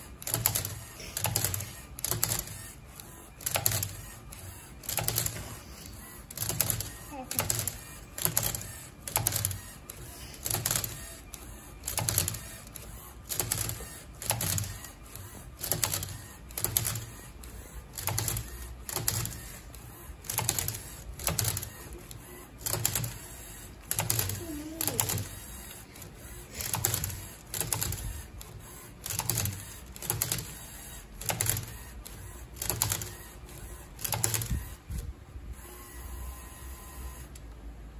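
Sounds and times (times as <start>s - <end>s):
robot motors whirring: 0.2s - 34.9s.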